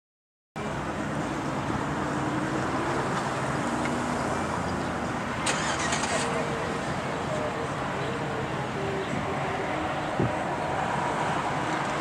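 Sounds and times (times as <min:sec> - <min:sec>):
faint engine hum: 0:00.6 - 0:12.0
road traffic passing: 0:00.6 - 0:12.0
wind on microphone: 0:10.0 - 0:11.6.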